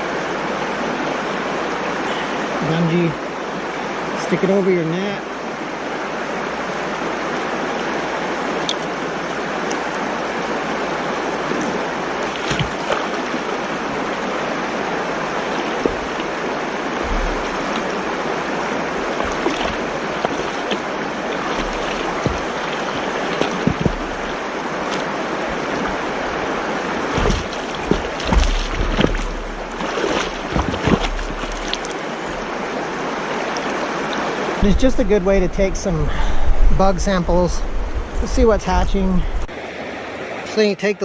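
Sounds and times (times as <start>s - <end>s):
river rushing over rocks: 0.0s - 35.2s
boots splashing through gravel: 19.0s - 26.0s, 27.1s - 32.1s.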